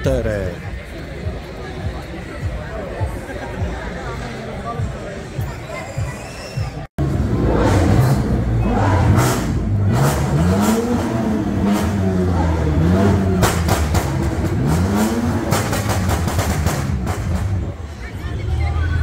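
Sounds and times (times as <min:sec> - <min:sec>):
crowd noise: 0:00.0 - 0:19.0
sports car engine revving: 0:07.0 - 0:17.8
exhaust cracks: 0:07.1 - 0:17.8.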